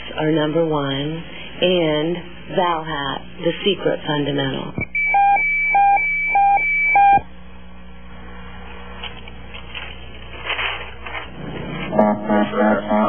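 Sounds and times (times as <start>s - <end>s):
short electronic beeps: 4.8s - 7.2s.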